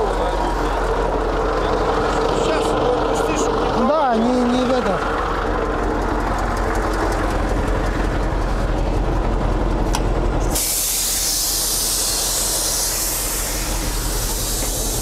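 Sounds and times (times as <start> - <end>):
diesel engine droning: 0.0 - 15.0
loud steady hiss: 10.5 - 15.0.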